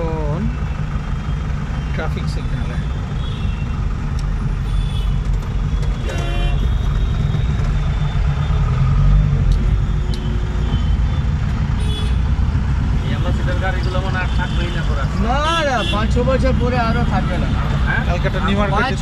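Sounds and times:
engine and road rumble: 0:00.0 - 0:19.0
vehicle horn honking: 0:03.2 - 0:03.7, 0:04.6 - 0:05.2, 0:06.0 - 0:07.3, 0:09.9 - 0:12.3, 0:13.8 - 0:16.1.

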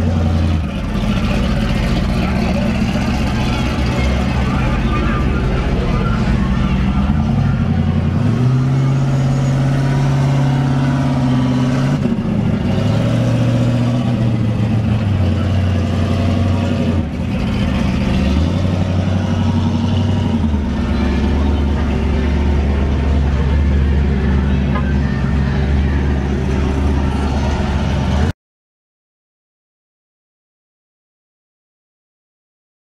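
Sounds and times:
car engine revving: 0:00.0 - 0:28.3.

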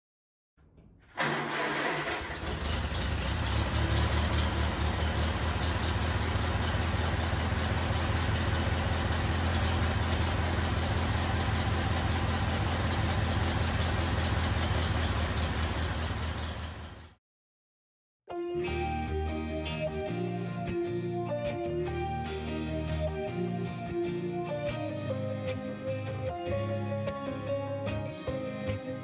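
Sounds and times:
engine running: 0:01.2 - 0:17.2.

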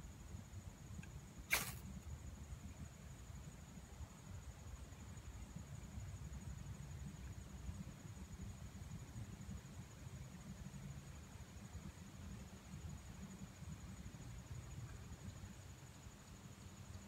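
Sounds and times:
insect trilling: 0:01.5 - 0:01.8.

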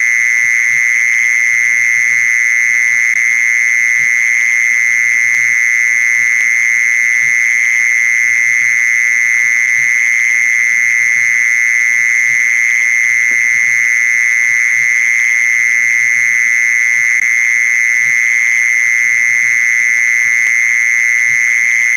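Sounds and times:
mole cricket trill: 0:00.0 - 0:21.9.

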